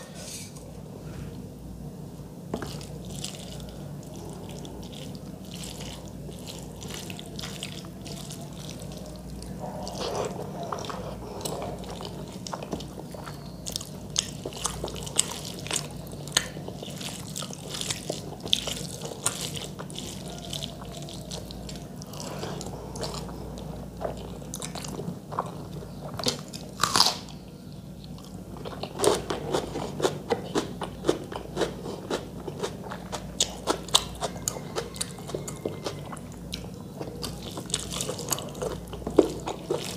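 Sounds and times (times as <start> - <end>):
mouth chewing: 2.6 - 27.3, 27.9 - 39.9.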